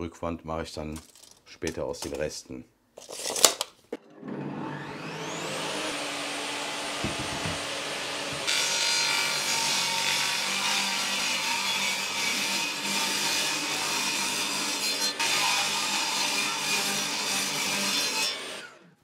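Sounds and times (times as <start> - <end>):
table saw motor whining: 4.0 - 19.0
saw blade cutting board: 4.2 - 18.8.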